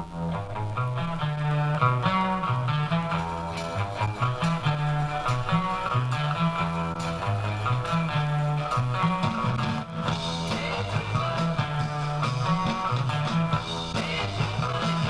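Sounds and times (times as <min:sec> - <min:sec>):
rock music through loudspeakers: 0:00.0 - 0:15.0.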